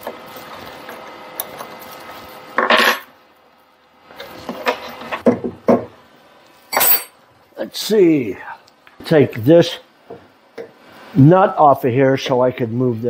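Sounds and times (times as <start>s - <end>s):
metal wrench scraping: 6.7s - 7.2s.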